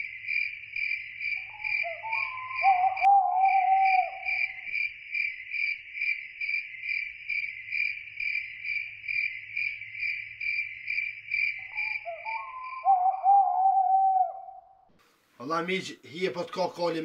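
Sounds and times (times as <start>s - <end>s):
crickets chirping: 0.0s - 14.6s
wavering whistled call: 1.5s - 4.6s, 11.6s - 14.8s.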